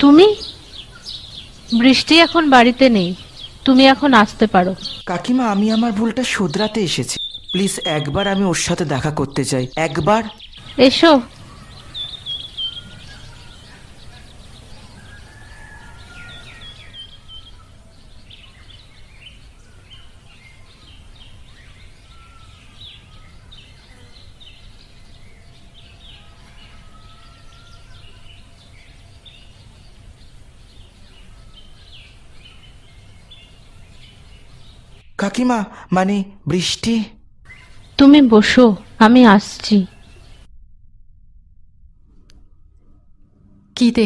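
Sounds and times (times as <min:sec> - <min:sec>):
small birds chirping: 0:00.0 - 0:40.5
whistled bird notes: 0:09.9 - 0:35.2, 0:37.4 - 0:38.0
low background rumble: 0:36.2 - 0:44.0.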